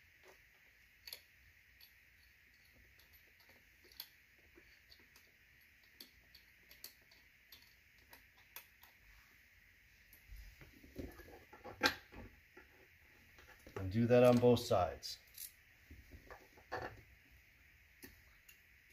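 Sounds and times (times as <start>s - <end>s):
faint steady hiss: 0.0s - 18.9s
screws clicking and tapping: 1.0s - 9.0s.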